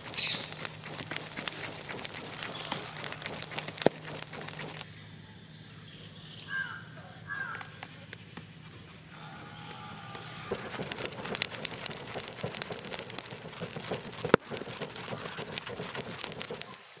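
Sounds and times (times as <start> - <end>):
charcoal fire crackling and popping: 0.0 - 4.9, 7.4 - 17.0.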